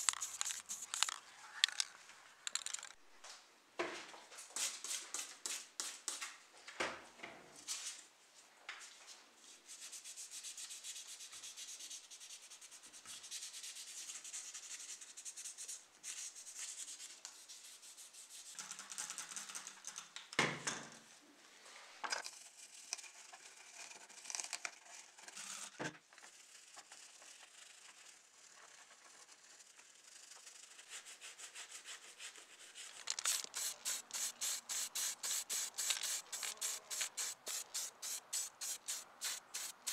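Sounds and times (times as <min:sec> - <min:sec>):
scratchy scrubbing on metal parts: 0:00.0 - 0:01.9, 0:30.8 - 0:39.9.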